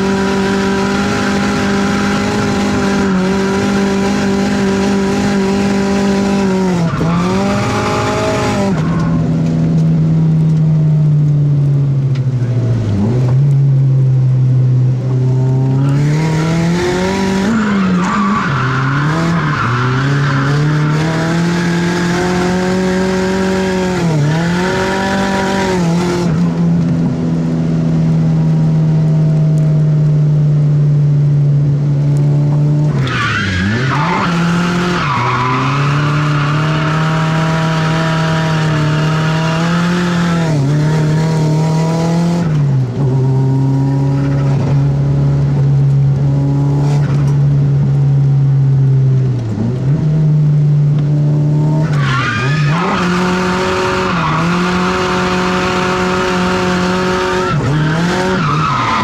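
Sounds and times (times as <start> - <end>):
car engine at high revs: 0.0 - 59.0
tyre squeal: 17.2 - 21.8, 32.9 - 40.3, 51.8 - 55.4, 57.2 - 59.0.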